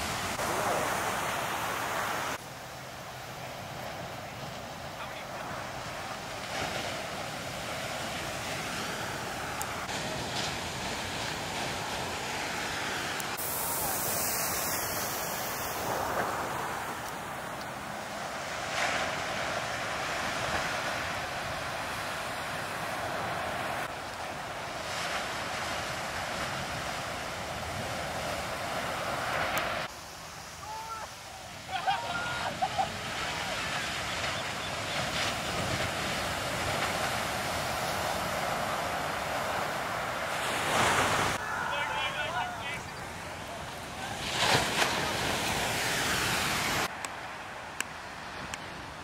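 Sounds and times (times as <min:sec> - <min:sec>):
ocean waves crashing: 0:00.0 - 0:49.0.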